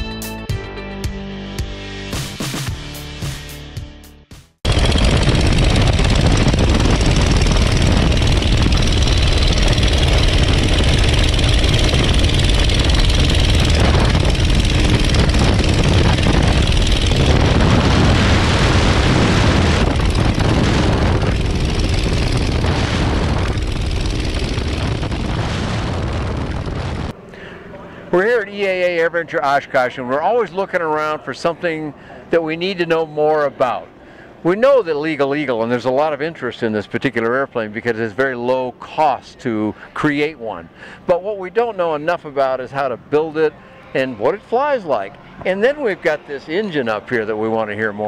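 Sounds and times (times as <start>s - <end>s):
aircraft engine and propeller running: 4.6s - 29.0s, 33.8s - 34.5s.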